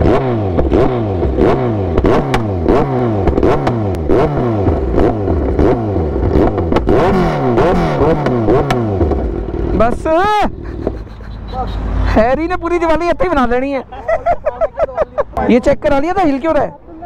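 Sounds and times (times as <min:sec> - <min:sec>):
exhaust pops and backfires: 0:00.0 - 0:11.3
motorcycle engine revving: 0:00.0 - 0:12.5.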